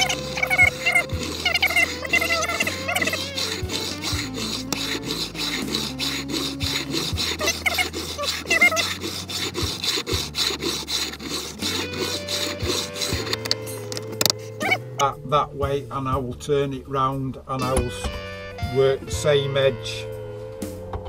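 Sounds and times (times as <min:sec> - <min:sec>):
file rasping on fret wire: 0:00.0 - 0:15.1, 0:17.6 - 0:18.8.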